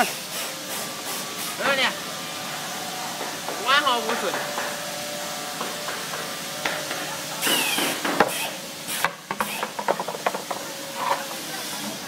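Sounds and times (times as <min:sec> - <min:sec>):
steady hiss: 0:00.0 - 0:12.0
wooden chair knocking on concrete: 0:09.3 - 0:10.6.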